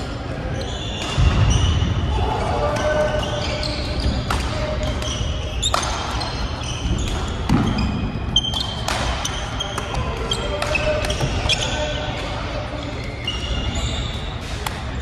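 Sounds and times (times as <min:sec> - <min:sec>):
echoing din of play: 0:00.0 - 0:15.0
sneakers squeaking on court floor: 0:00.4 - 0:15.0
racket hitting shuttlecock: 0:04.1 - 0:06.3, 0:08.4 - 0:11.6.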